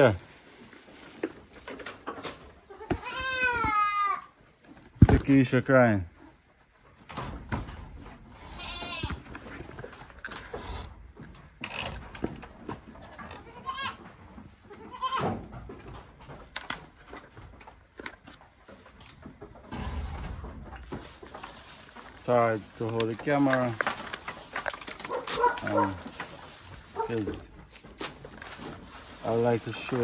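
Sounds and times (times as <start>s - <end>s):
rustling: 0.0s - 3.8s, 15.6s - 30.0s
goats bleating: 2.7s - 4.3s, 8.4s - 9.2s, 13.3s - 14.0s, 14.6s - 15.4s.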